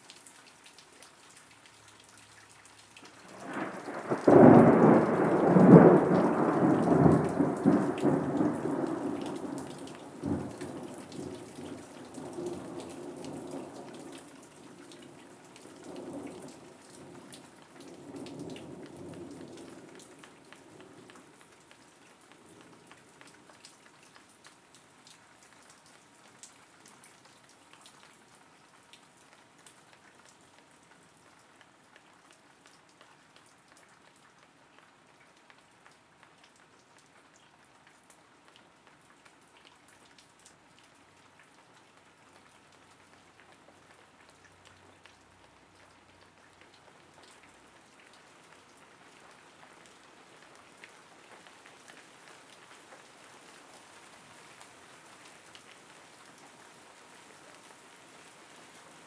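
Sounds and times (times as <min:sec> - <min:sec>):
rain drop ticks: 0:00.0 - 0:53.1
steady rain: 0:00.0 - 0:59.0
thunder clap and rumble: 0:03.4 - 0:09.5.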